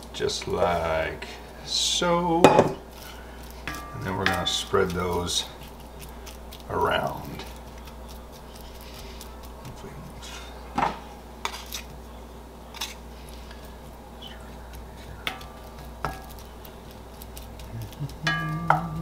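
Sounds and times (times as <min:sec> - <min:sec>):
utensils knocking on skillet: 0:02.4 - 0:02.8, 0:03.6 - 0:04.7, 0:15.2 - 0:16.3.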